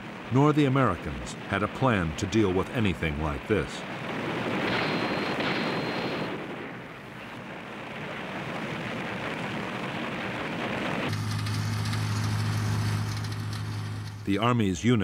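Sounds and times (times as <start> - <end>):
crackling fire: 0.0 - 14.4
jeep engine humming: 11.1 - 14.3.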